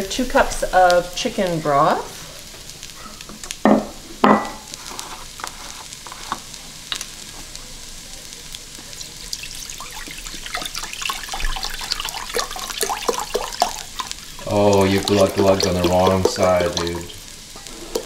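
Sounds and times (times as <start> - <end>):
couscous sizzling faintly: 0.0 - 18.0
broth pouring and glugging: 9.0 - 18.0.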